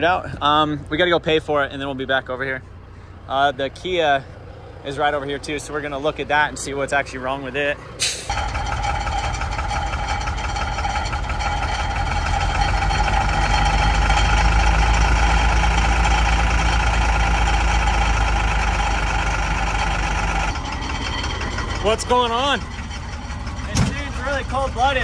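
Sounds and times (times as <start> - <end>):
heavy truck engine idling: 2.6 - 25.0.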